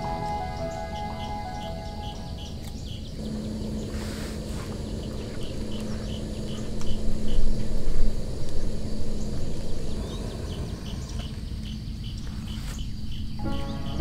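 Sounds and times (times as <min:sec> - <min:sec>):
soft background music: 0:00.0 - 0:03.2, 0:13.4 - 0:14.0
low rushing noise: 0:00.0 - 0:12.1
insects chirping: 0:00.0 - 0:14.0.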